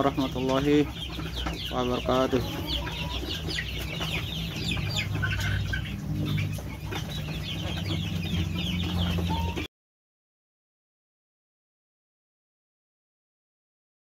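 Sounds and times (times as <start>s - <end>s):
chickens clucking and chirping: 0.0s - 9.7s.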